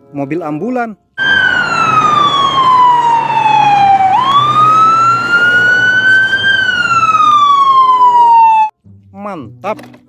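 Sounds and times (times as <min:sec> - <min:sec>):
ambulance siren wailing: 0:01.2 - 0:08.7.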